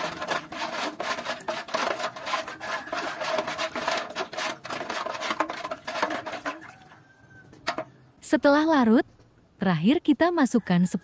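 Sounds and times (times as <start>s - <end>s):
stick scraping metal pot: 0.0s - 8.0s
stirring water: 0.0s - 8.0s.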